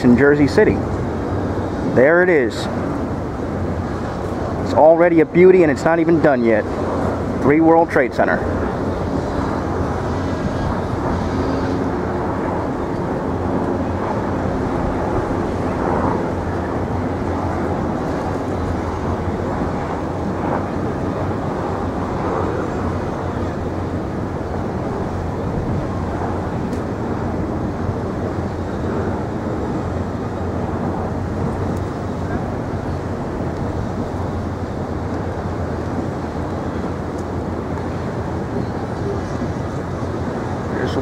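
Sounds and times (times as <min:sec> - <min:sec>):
low engine drone: 0:00.0 - 0:41.0
outdoor background noise: 0:00.0 - 0:41.0.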